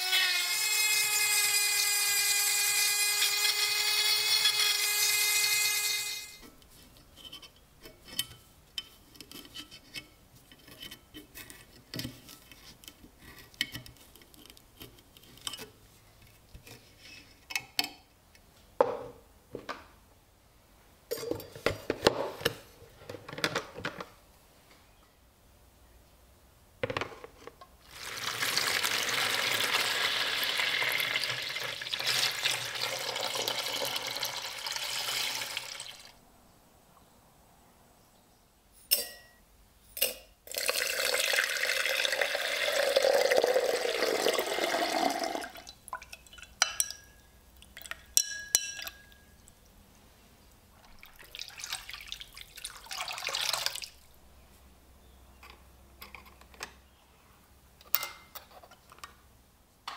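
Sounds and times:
water pouring into plastic tub: 0:27.8 - 0:36.2, 0:40.5 - 0:46.5, 0:50.8 - 0:54.0.

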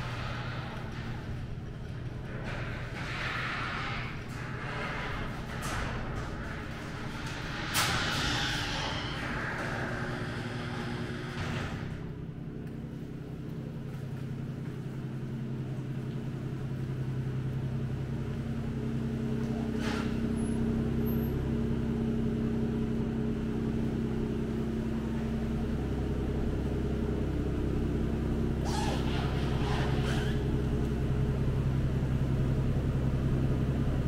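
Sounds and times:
car engine at slow crawl: 0:09.3 - 0:34.0.

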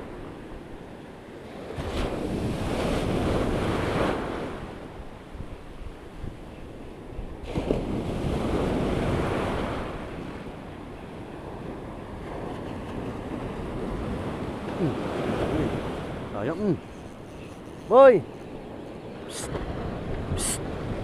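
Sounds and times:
sea surf breaking: 0:07.4 - 0:21.0
wind on microphone: 0:11.3 - 0:21.0.

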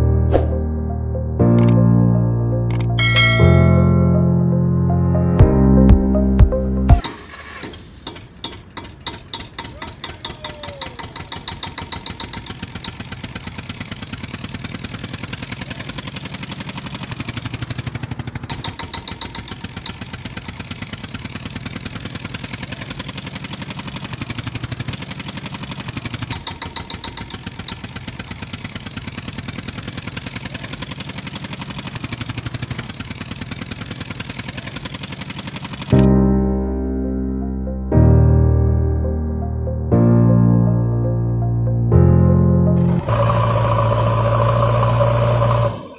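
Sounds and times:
tractor engine puttering: 0:02.7 - 0:04.2, 0:06.9 - 0:36.1, 0:42.8 - 0:45.9.

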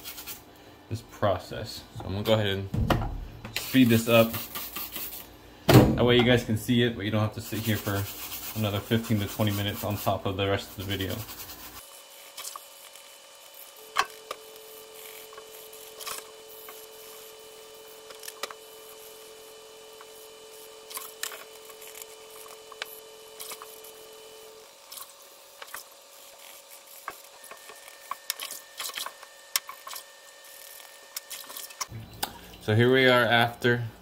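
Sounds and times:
faint steady hum: 0:00.1 - 0:34.0
brush scrubbing wet leather boot: 0:07.5 - 0:11.8.

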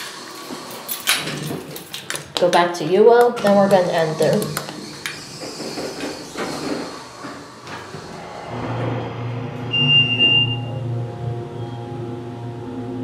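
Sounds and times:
elevator door rumbling shut: 0:07.8 - 0:12.0
high beep: 0:09.7 - 0:10.9.

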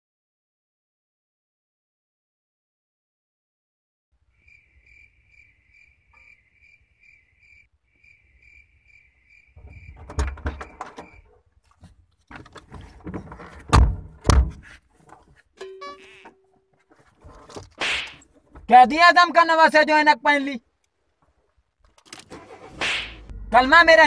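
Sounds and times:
rustling and knocking: 0:09.6 - 0:15.5
car doors thudding: 0:13.7 - 0:14.6.

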